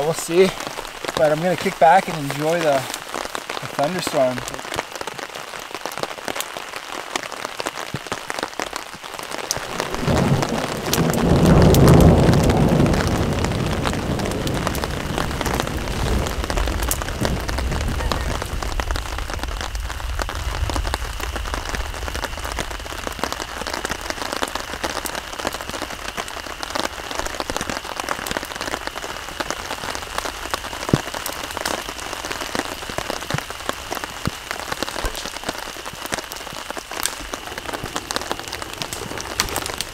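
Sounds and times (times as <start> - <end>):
steady rain falling: 0.0 - 39.9
thunder rumbling: 8.0 - 39.9.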